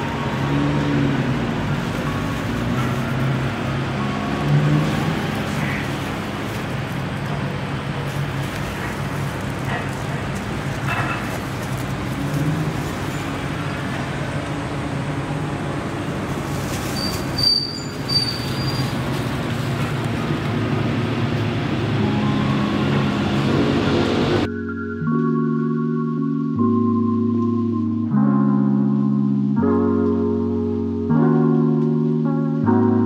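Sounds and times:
street traffic with engine hum: 0.0s - 33.0s
brief high squeak: 17.0s - 19.0s.

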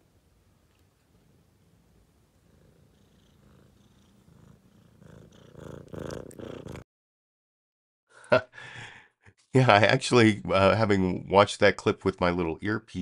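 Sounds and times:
cat purring: 0.7s - 6.8s.

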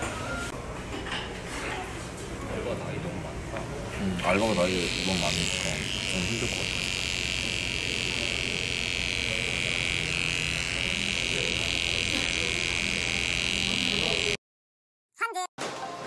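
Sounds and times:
electric trimmer buzzing: 4.2s - 14.4s.

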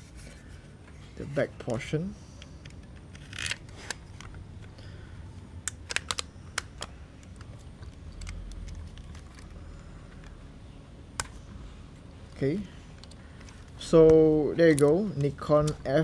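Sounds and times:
handling and rubbing: 0.0s - 1.8s.

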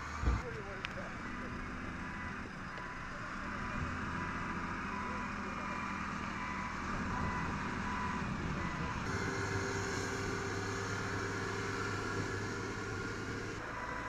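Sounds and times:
vehicle engine running: 0.0s - 14.0s
wheel loader engine working: 0.0s - 14.0s.

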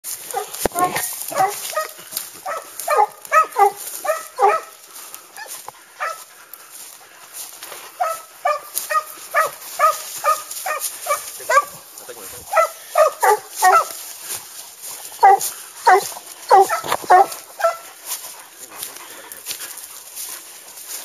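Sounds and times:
dogs yelping: 0.2s - 6.4s, 7.9s - 14.0s, 14.9s - 20.7s.

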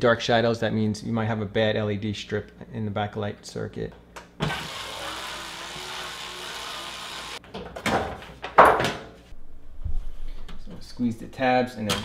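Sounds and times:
electric screwdriver whirring: 4.4s - 7.4s.

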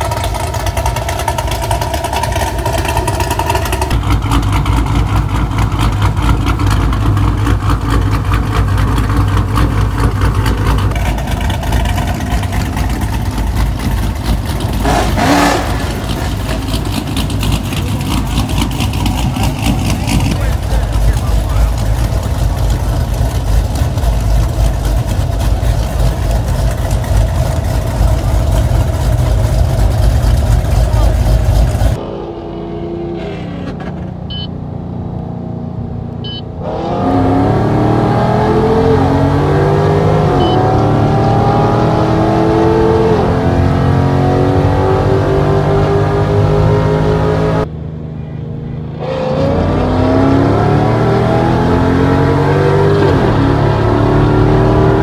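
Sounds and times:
engines revving through gear shifts: 0.0s - 32.0s, 36.0s - 47.7s, 48.9s - 55.0s
car engine idling: 0.0s - 32.5s.

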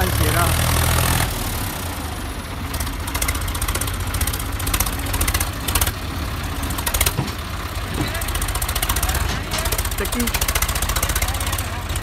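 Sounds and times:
tractor diesel engine running: 0.0s - 12.0s
rapid ticking and clattering: 6.8s - 12.0s.

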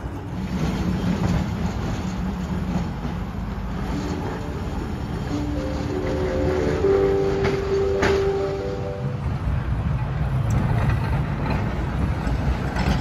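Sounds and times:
electric tram rumbling: 0.0s - 13.0s
music with held notes: 4.1s - 9.4s.

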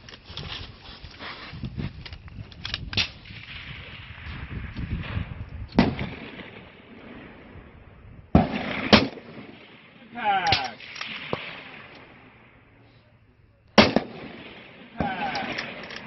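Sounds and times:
rifle shots: 3.0s - 7.5s, 8.3s - 12.7s, 13.8s - 16.0s.

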